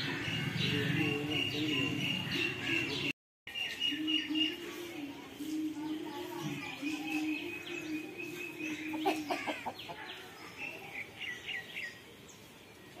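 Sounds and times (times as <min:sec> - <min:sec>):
chickens clucking: 0:08.2 - 0:10.3.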